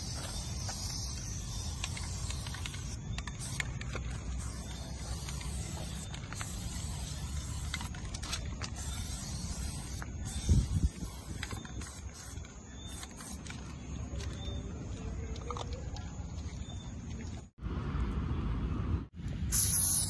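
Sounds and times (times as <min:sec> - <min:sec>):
spray paint can hissing: 0:00.0 - 0:13.7, 0:19.5 - 0:20.0.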